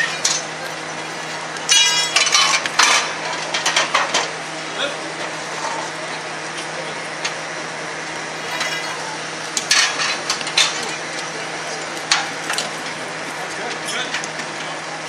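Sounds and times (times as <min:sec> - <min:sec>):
metal clanks and knocks: 0:00.0 - 0:04.3, 0:09.6 - 0:13.0
murmur of onlookers: 0:04.4 - 0:15.0.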